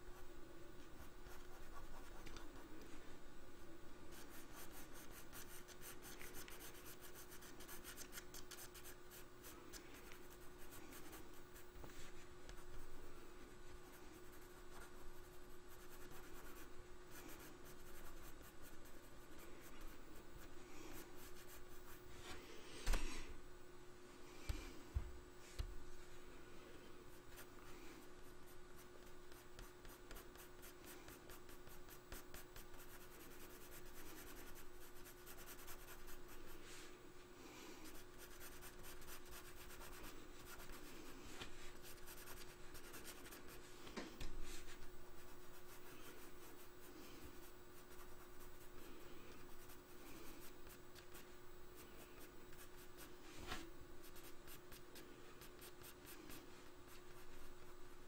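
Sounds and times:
faint steady hum: 0:00.0 - 0:58.0
pencil scratching on paper: 0:04.1 - 0:09.5, 0:28.3 - 0:36.4, 0:37.9 - 0:41.0, 0:41.8 - 0:43.6.

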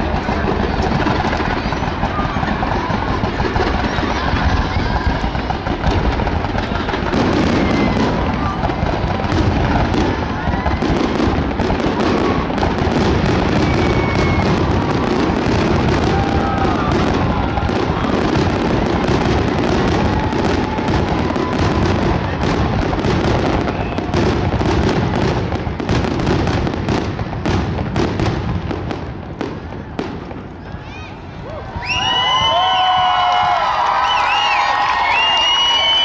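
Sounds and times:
fireworks bursting and crackling: 0:00.0 - 0:36.0.

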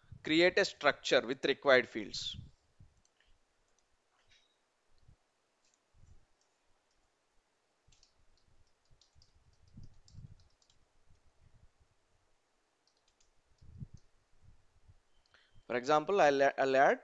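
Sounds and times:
computer keyboard typing: 0:07.9 - 0:11.2, 0:12.8 - 0:14.1
mouse clicks: 0:07.9 - 0:11.2, 0:12.8 - 0:14.1.

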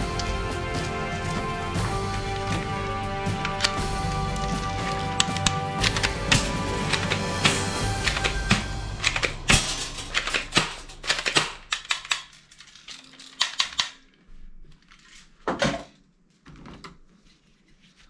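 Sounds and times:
plastic toy guns clattering: 0:09.0 - 0:14.1.

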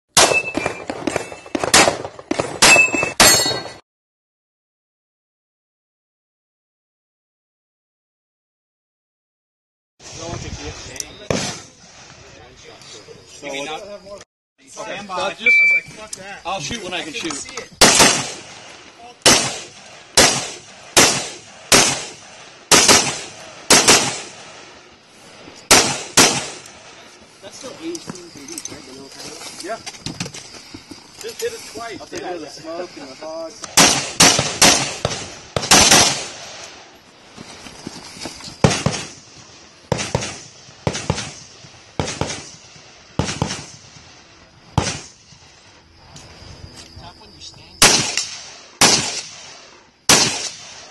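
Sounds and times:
rifle shots with echo: 0:00.2 - 0:03.4, 0:11.3 - 0:11.7, 0:17.8 - 0:24.7, 0:25.7 - 0:27.0, 0:33.7 - 0:36.8, 0:38.6 - 0:39.3, 0:39.9 - 0:44.1, 0:44.8 - 0:45.2, 0:47.8 - 0:50.9.

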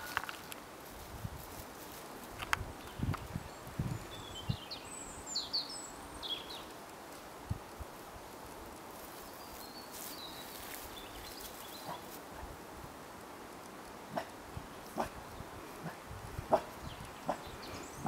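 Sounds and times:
songbird chirping: 0:01.9 - 0:07.0, 0:08.9 - 0:12.5, 0:13.5 - 0:18.0.

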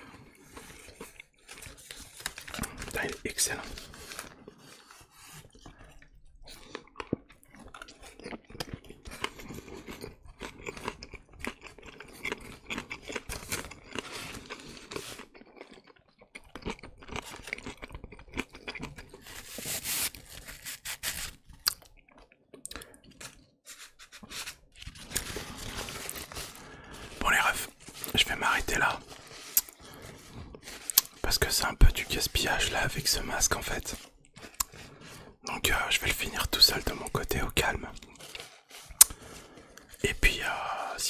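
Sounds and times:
person chewing and smacking: 0:00.0 - 0:02.9, 0:04.2 - 0:20.2, 0:21.4 - 0:23.6, 0:29.0 - 0:32.2, 0:33.2 - 0:35.9, 0:37.0 - 0:40.0.

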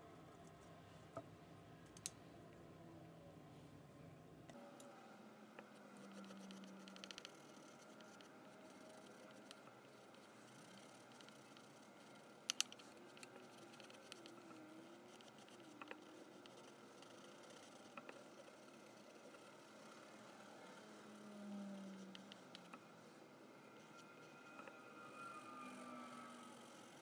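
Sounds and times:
crayon scratching on paper: 0:05.7 - 0:20.0.

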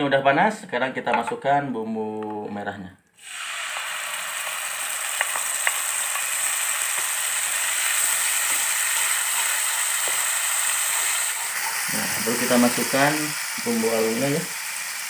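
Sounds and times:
spice paste sizzling in oil: 0:03.2 - 0:15.0.

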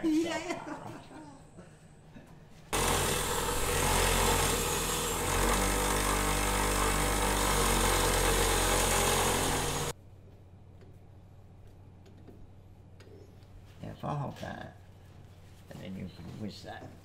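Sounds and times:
bench grinder grinding metal: 0:02.8 - 0:09.9.

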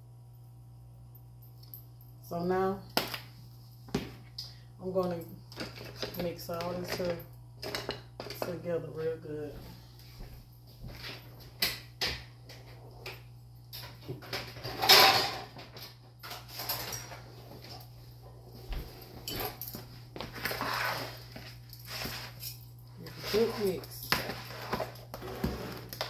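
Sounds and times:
kitchen utensils clattering: 0:05.6 - 0:08.7, 0:13.8 - 0:17.8, 0:19.2 - 0:26.0
spoon scraping in bowl: 0:23.0 - 0:26.0.

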